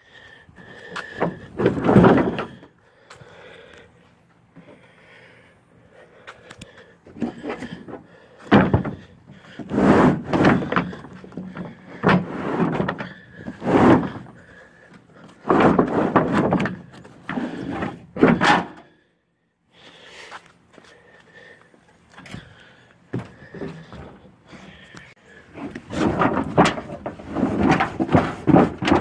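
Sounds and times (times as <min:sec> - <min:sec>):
rubber mat scraping: 0:01.1 - 0:02.6, 0:07.2 - 0:14.5, 0:15.3 - 0:18.5, 0:25.5 - 0:29.0.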